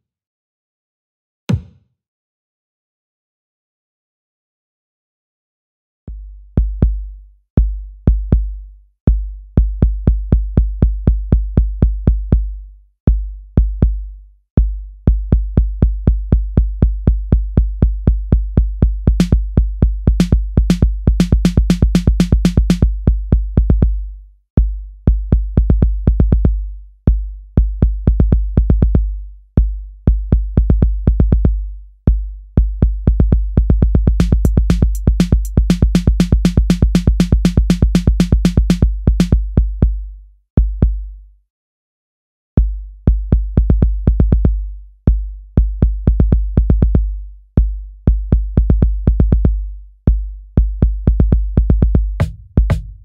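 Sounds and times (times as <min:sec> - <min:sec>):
electronic music with drum-machine beat: 0:18.9 - 0:23.0, 0:33.3 - 0:39.6.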